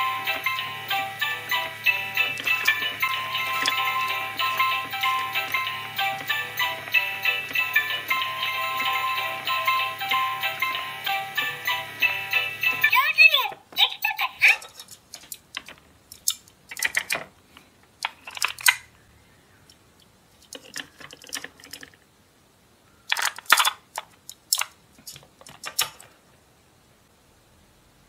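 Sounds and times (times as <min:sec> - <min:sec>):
plastic toy pieces clicking: 0:02.2 - 0:09.0, 0:14.6 - 0:17.3, 0:18.0 - 0:18.9, 0:20.4 - 0:22.0, 0:23.1 - 0:26.1.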